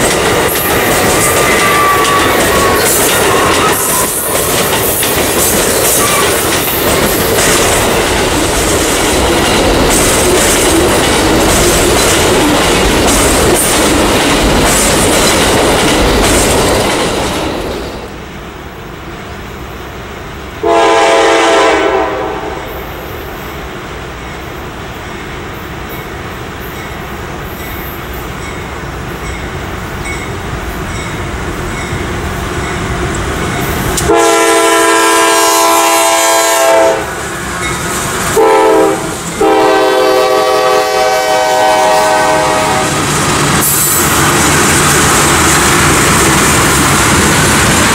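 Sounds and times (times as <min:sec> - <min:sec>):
train cars rumbling and clattering: 0:00.0 - 0:47.9
locomotive air horn blasts: 0:20.6 - 0:22.8, 0:34.0 - 0:37.2, 0:38.3 - 0:43.0.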